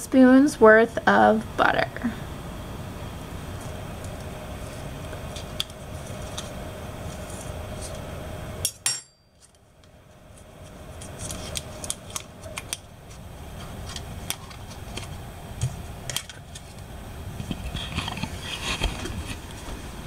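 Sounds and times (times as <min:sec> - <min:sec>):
paper wrapper crinkling: 0:10.4 - 0:15.2.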